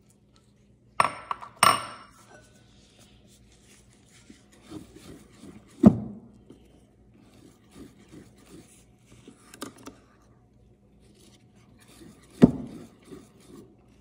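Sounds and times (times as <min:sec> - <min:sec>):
utensil scraping batter in bowl: 0:02.2 - 0:05.8, 0:06.6 - 0:09.5, 0:11.1 - 0:14.0.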